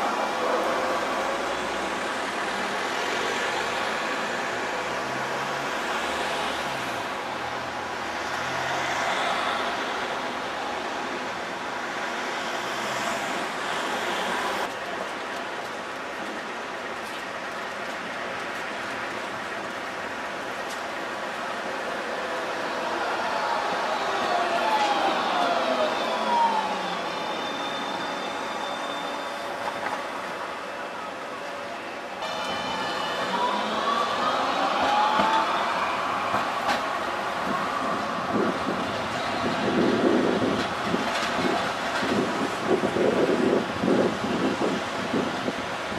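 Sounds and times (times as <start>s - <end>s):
cars passing: 0.0s - 14.7s, 21.7s - 28.0s, 32.2s - 45.6s
tram wheels rumbling on rail: 0.0s - 45.9s.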